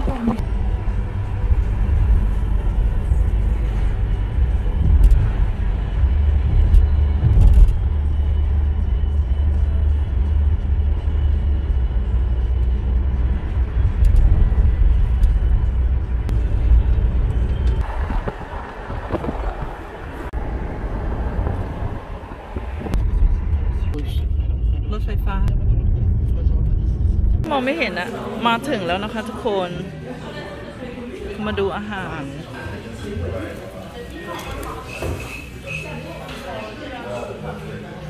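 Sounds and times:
car road and engine rumble: 0:00.0 - 0:27.5.

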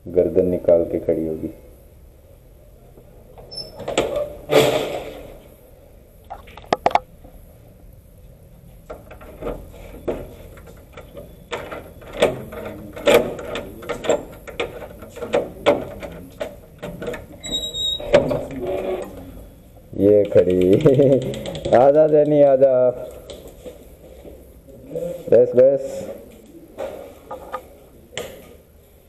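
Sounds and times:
high gate squeal: 0:17.4 - 0:19.1.

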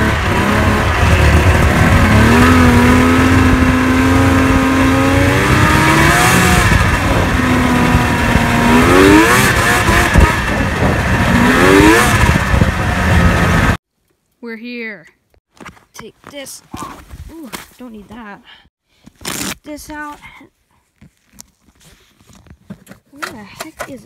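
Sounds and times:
snowmobile engine revving: 0:00.0 - 0:13.8.

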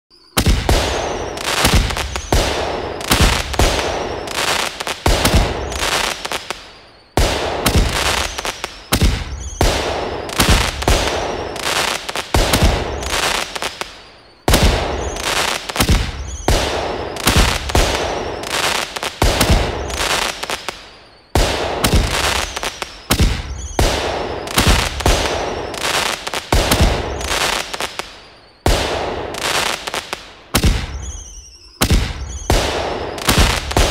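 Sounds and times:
firework bang: 0:00.4 - 0:06.6, 0:07.2 - 0:13.5, 0:14.5 - 0:20.1
firework cracking pops: 0:00.4 - 0:33.9.

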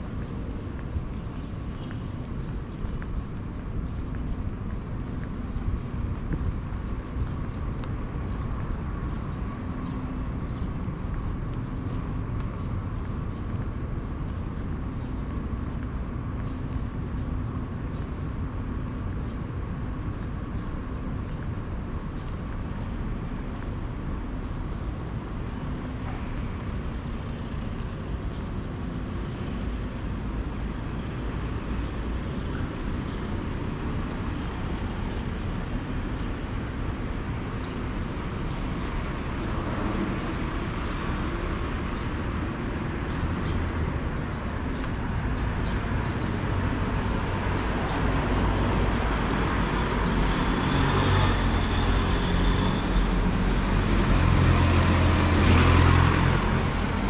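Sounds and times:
road traffic: 0:00.0 - 0:57.0.

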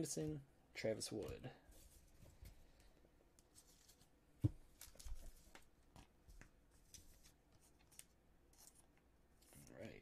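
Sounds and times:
trading cards being handled: 0:03.4 - 0:10.0.

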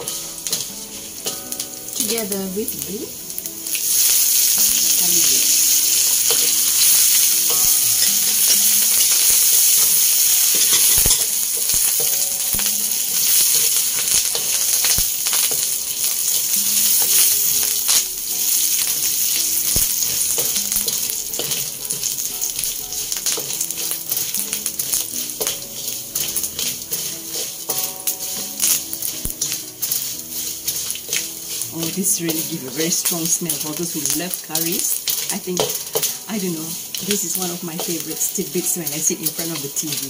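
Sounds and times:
spices sizzling in hot oil: 0:00.0 - 0:40.0
wooden spatula scraping pan: 0:19.6 - 0:40.0.

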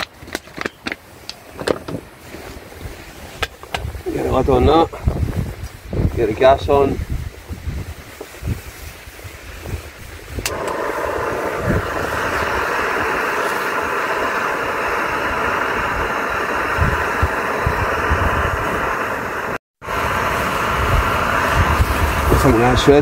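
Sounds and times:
gas stove burner hissing: 0:02.3 - 0:23.0
stove ignition click: 0:10.4 - 0:10.9.

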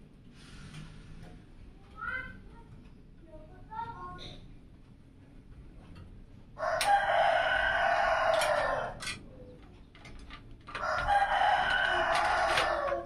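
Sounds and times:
rooster crowing: 0:06.6 - 0:09.0, 0:10.8 - 0:13.0.

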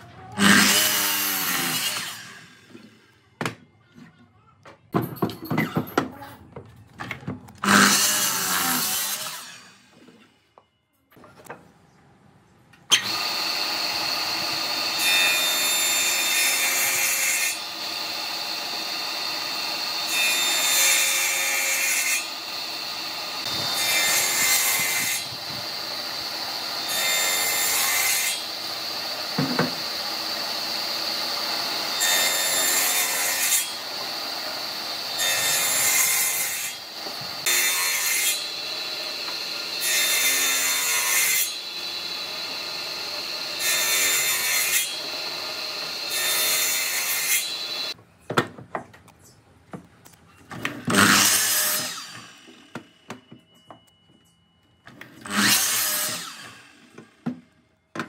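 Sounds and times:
board cutting passes: 0:00.4 - 0:03.1, 0:07.6 - 0:10.0, 0:12.9 - 0:48.0, 0:50.7 - 0:52.7, 0:55.1 - 0:57.2
jointer whining: 0:12.9 - 0:48.0.

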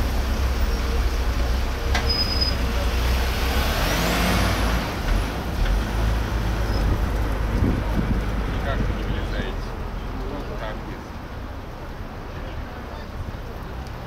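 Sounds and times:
vehicles driving slowly past: 0:00.0 - 0:14.0.

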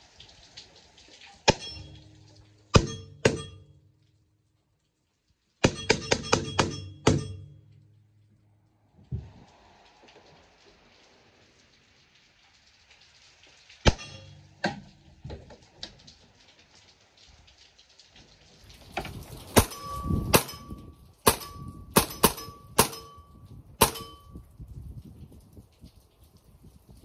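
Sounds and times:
light rain: 0:00.0 - 0:27.0
metallic ring: 0:01.5 - 0:03.9, 0:05.7 - 0:07.8, 0:19.6 - 0:24.5
air rifle shots: 0:19.6 - 0:23.2, 0:23.8 - 0:24.2.

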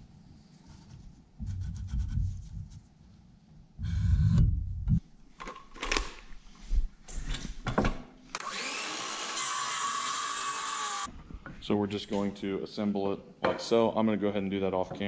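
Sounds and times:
power tool running: 0:08.4 - 0:11.1.

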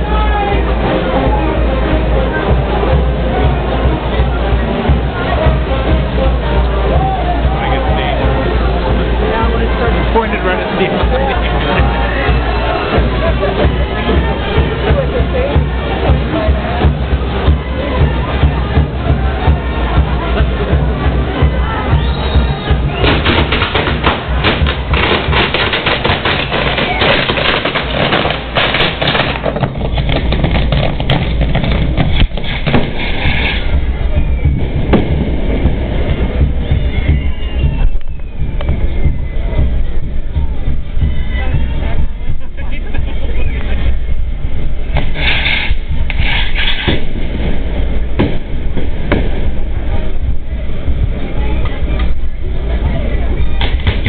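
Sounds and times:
crowd voices: 0:00.0 - 0:54.0
low rumble: 0:00.0 - 0:54.0
fireworks crackling and banging: 0:02.3 - 0:54.0
sharp pops: 0:23.0 - 0:33.7
fireworks sparks hissing: 0:23.0 - 0:33.9, 0:45.0 - 0:47.8
hiss of sparks: 0:45.1 - 0:47.0.

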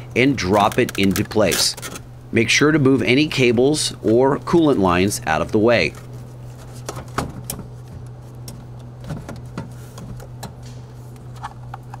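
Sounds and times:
steady low hum: 0:00.0 - 0:12.0
clicks and knocks of car parts: 0:06.8 - 0:10.8.

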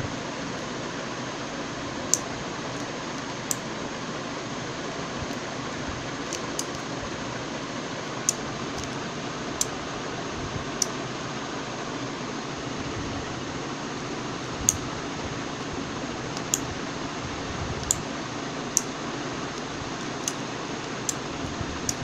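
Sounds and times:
small sharp clicks: 0:02.1 - 0:03.7, 0:06.3 - 0:06.9, 0:09.6 - 0:09.8, 0:14.6 - 0:14.9, 0:16.3 - 0:16.7, 0:17.8 - 0:18.0, 0:18.7 - 0:22.0.

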